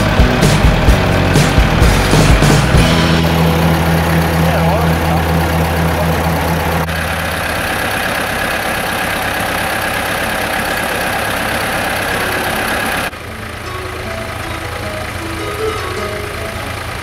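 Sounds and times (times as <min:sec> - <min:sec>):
tractor engines running: 0:00.0 - 0:17.0.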